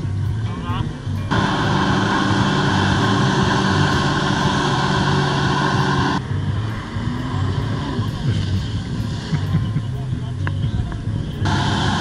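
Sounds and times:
jet ski engine: 0.0 - 12.0
water rushing hiss: 1.3 - 9.6.

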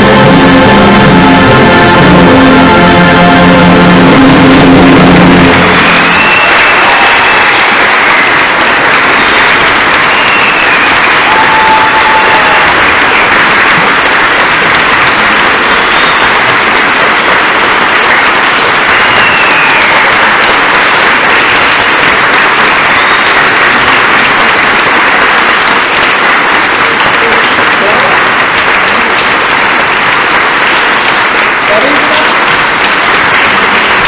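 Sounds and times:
congregation applauding: 0.0 - 34.0.

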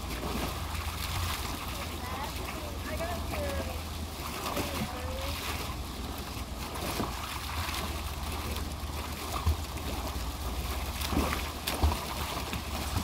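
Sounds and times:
fountain splashing into basin: 0.0 - 13.0
dog splashing through water: 10.6 - 13.0.

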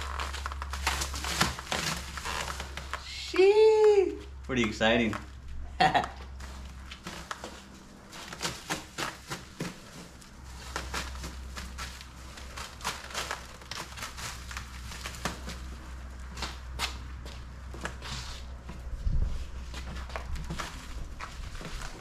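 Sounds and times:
plastic wrap crinkling and tearing: 0.0 - 4.0, 6.3 - 16.7.

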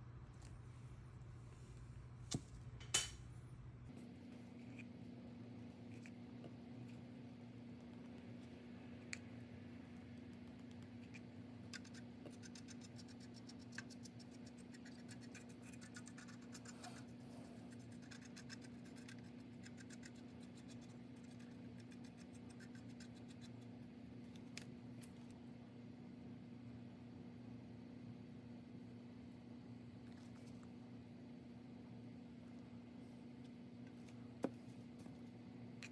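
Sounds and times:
steady low hum: 0.0 - 35.9
brush bristles scratching plastic: 10.9 - 23.7.

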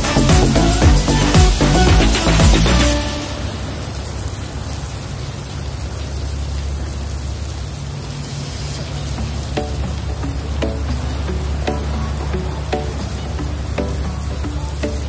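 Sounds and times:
outdoor rushing noise: 0.0 - 6.5.

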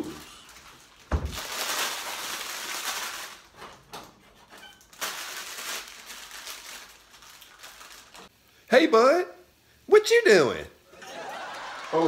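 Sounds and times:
plastic packet crinkling: 0.0 - 3.7, 4.8 - 8.3.

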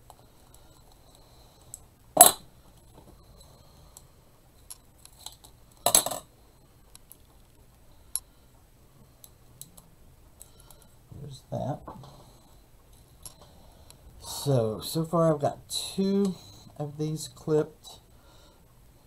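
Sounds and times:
metal tools clattering on mat: 5.8 - 6.3.

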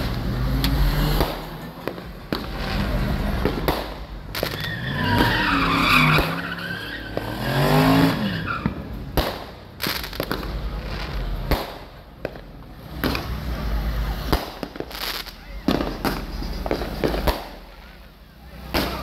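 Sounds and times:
fireworks popping: 0.0 - 5.4, 6.1 - 6.4, 8.6 - 19.0
car engine revving: 0.0 - 19.0
tyres squealing: 4.4 - 8.9.

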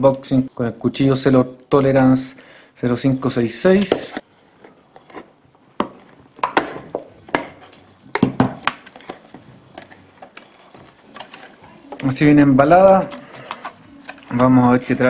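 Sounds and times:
plastic packaging cracking and crinkling: 6.0 - 15.0.

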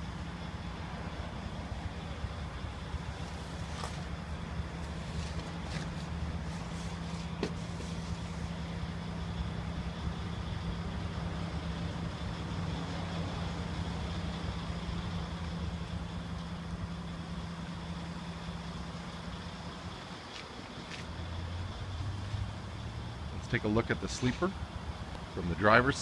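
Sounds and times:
diesel truck engine idling: 0.0 - 26.0.

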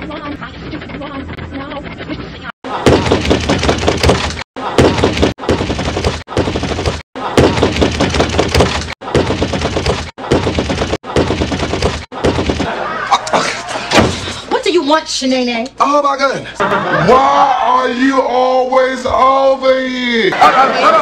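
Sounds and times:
fist pounding on door: 2.8 - 12.7.

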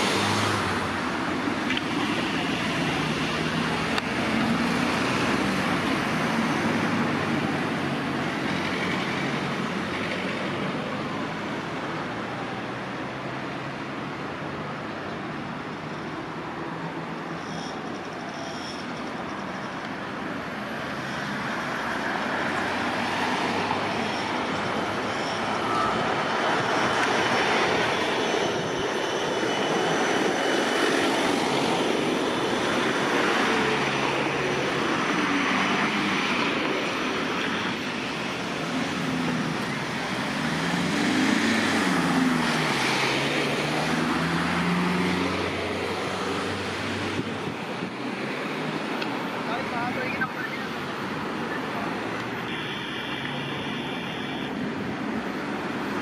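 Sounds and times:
tram wheels rumbling on rails: 16.6 - 49.5.

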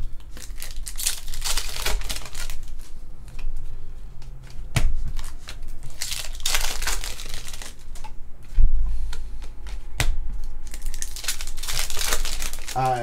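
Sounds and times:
card wrappers crinkling: 0.2 - 3.0, 5.1 - 8.0, 10.4 - 13.0
cards flipped through by hand: 0.2 - 12.8.

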